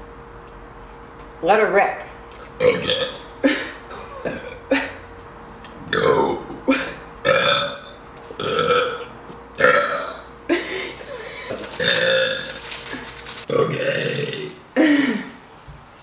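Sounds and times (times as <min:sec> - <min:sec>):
woman burping loudly: 0:02.4 - 0:05.0, 0:05.9 - 0:10.3, 0:11.7 - 0:12.6, 0:13.5 - 0:15.3.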